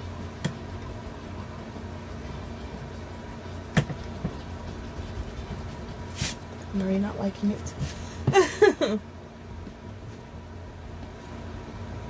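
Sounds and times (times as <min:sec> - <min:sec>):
low steady hum: 0:00.0 - 0:12.0
pencil sketching on wood: 0:04.0 - 0:06.4.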